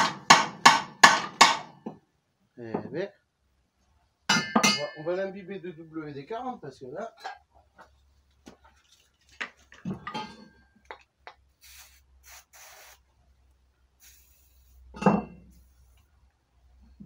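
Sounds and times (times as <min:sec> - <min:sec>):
aerosol can spraying: 0:11.6 - 0:13.0, 0:14.0 - 0:14.9.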